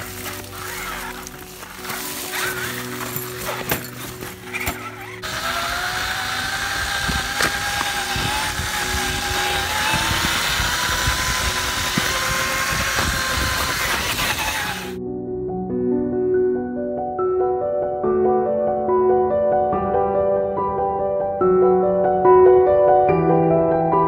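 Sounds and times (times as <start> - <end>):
toy truck motor whining: 0.0 - 15.0
tyres crunching dry leaves: 0.0 - 15.0
background music: 0.0 - 24.0.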